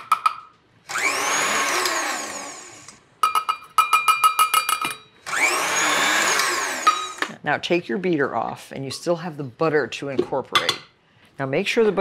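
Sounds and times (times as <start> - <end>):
metal cup tapping on mixer: 3.2 - 5.0.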